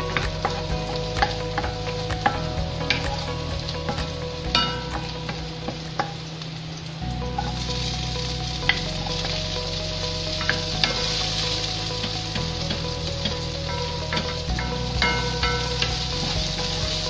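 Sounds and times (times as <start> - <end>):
garlic sizzling in hot oil: 0.0 - 17.0.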